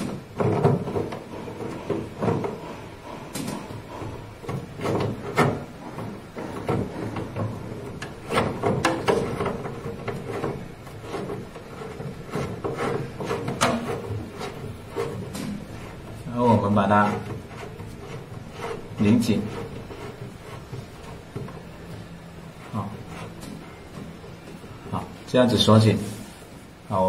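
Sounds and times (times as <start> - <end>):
braided hose rubbing: 0.0 - 25.3.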